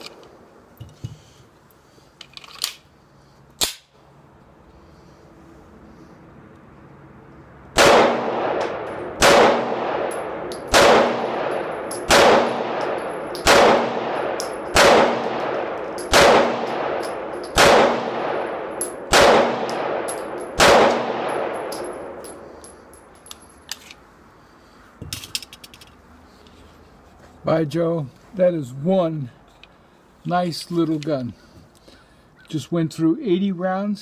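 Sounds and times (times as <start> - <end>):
pistol shots with ringing echo: 7.8 - 22.4.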